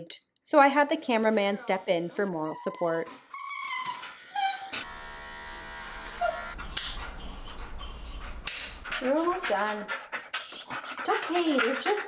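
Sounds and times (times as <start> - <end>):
dog whining: 1.3 - 4.9, 6.0 - 9.6
pet trimmer buzzing: 4.7 - 7.8.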